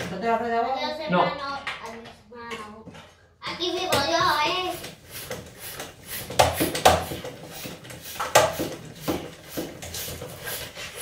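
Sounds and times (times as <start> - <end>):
floor pump strokes: 2.8 - 11.0.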